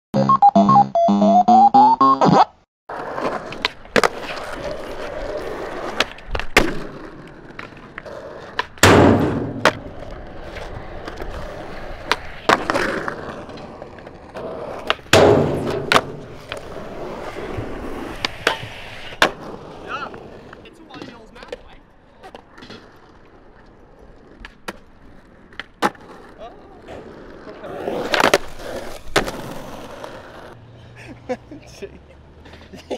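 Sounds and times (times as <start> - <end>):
eight-bit jingle: 0.2 - 2.4
skateboard pops and landings: 2.9 - 21.6, 24.2 - 24.9, 25.5 - 26.3, 27.8 - 30.2
skateboard sliding on ledge: 2.9 - 30.6
skateboard wheels rolling on concrete: 2.9 - 32.9.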